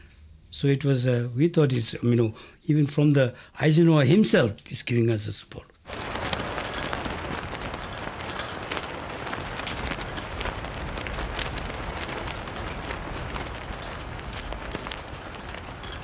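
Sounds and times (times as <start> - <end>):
flag flapping in strong wind: 5.9 - 16.0.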